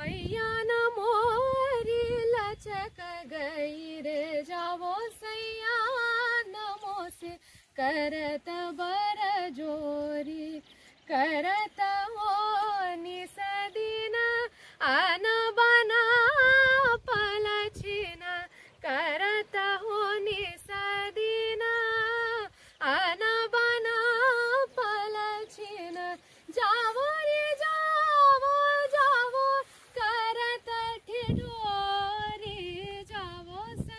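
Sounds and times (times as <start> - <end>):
woman singing with vibrato: 0.0 - 33.9
singer breathing: 7.4 - 7.8, 14.5 - 14.8, 18.5 - 18.8, 22.5 - 22.8.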